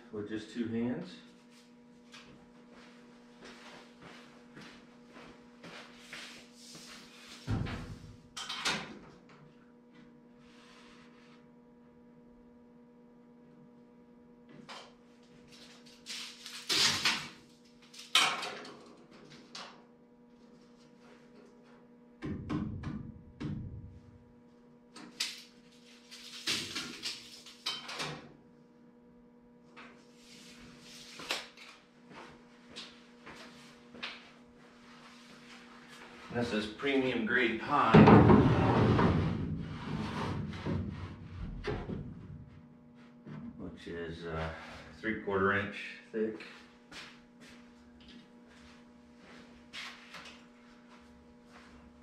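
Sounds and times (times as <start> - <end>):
electrical hum: 0.0 - 52.0
wooden board knocks and scrapes: 38.0 - 42.2.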